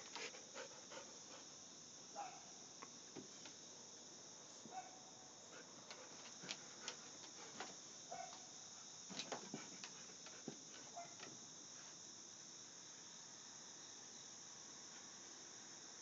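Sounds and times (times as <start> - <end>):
high insect chorus: 0.0 - 16.0.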